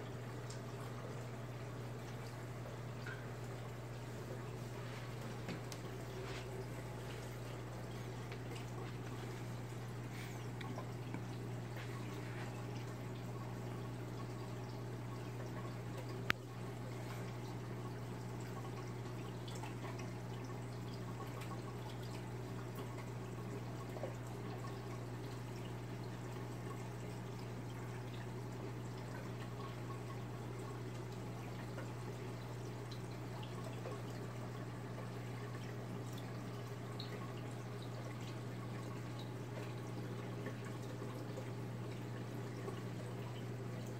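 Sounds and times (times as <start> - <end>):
low motor hum: 0.0 - 25.0
water trickling and dripping: 0.0 - 43.9.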